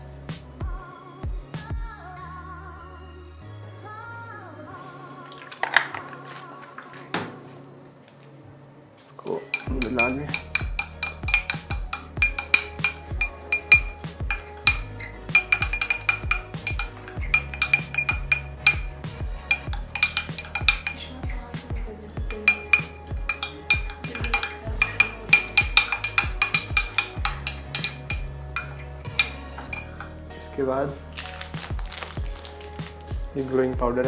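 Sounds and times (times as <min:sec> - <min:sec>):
metal spoon scraping glass: 0:09.5 - 0:30.2.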